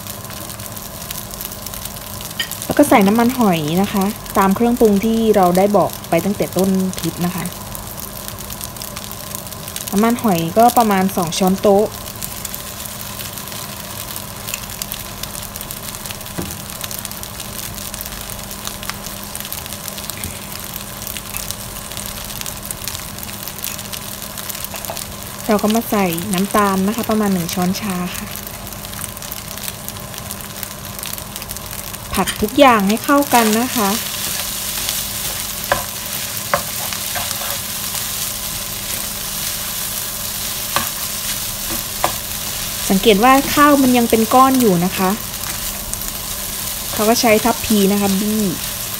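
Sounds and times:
faint steady hum: 0:00.0 - 0:48.9
fried rice sizzling in a pan: 0:00.0 - 0:48.9
small crackles: 0:00.0 - 0:48.9
spatula stirring food: 0:32.9 - 0:43.6.

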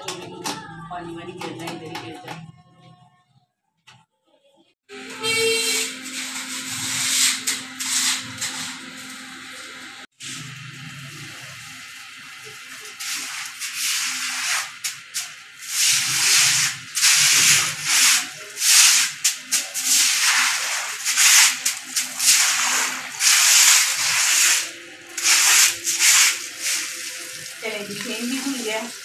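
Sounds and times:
broom scrubbing wet concrete: 0:05.4 - 0:09.1, 0:10.2 - 0:29.0
water running from hose: 0:10.2 - 0:29.0.

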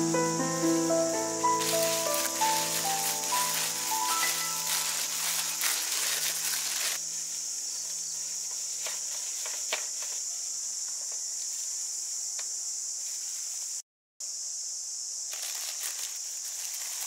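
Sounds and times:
high-pitched insect buzzing: 0:00.0 - 0:11.9.

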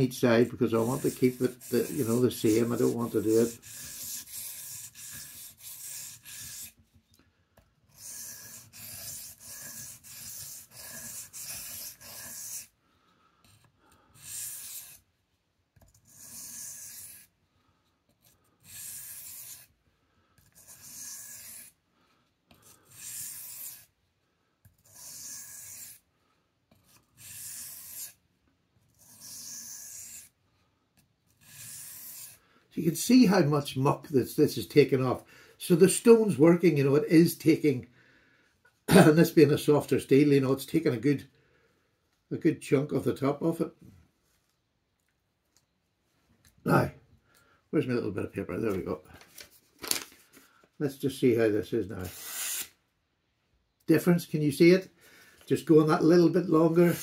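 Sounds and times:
knife scraping on whetstone: 0:00.7 - 0:06.8, 0:07.9 - 0:12.7, 0:16.1 - 0:17.3, 0:20.5 - 0:21.8.

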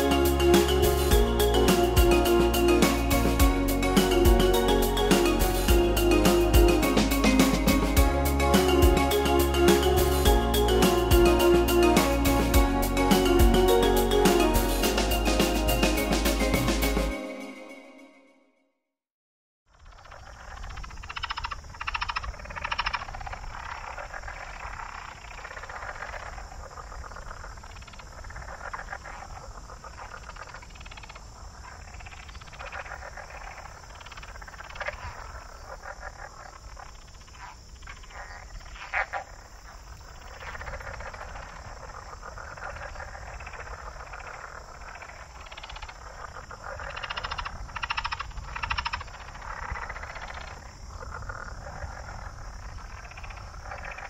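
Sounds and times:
frogs and insects trilling: 0:00.0 - 0:14.7, 0:19.7 - 0:54.0
single frog calls: 0:19.7 - 0:54.0.

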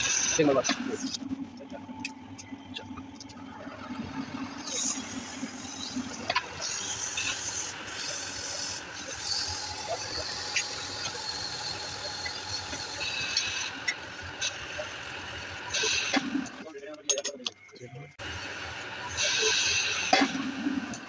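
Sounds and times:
lathe squealing hiss: 0:00.0 - 0:01.2, 0:04.3 - 0:16.6, 0:18.2 - 0:21.0
low hum: 0:00.0 - 0:11.0.

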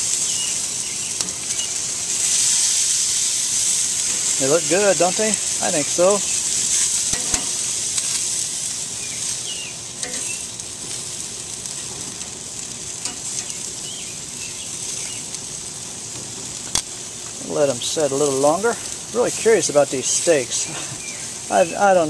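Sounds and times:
meat sizzling on a grill: 0:00.0 - 0:22.0
metal tongs clicking on grate: 0:06.8 - 0:08.1, 0:10.0 - 0:10.3, 0:13.0 - 0:13.5.

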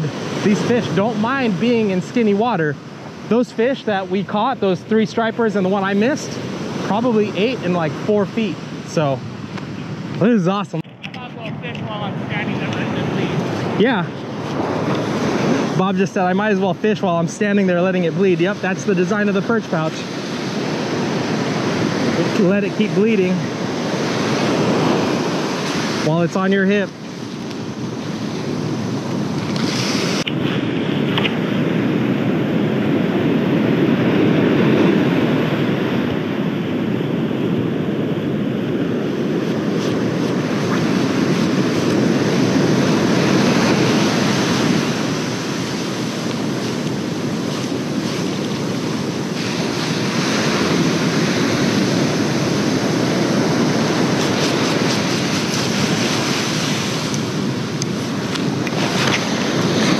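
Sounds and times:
ocean surf breaking: 0:00.0 - 0:59.9
wind buffeting microphone: 0:00.0 - 0:59.9.

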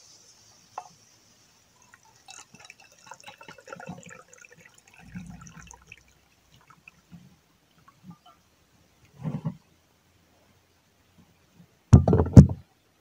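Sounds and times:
liquid pouring into metal cup: 0:01.8 - 0:07.2.

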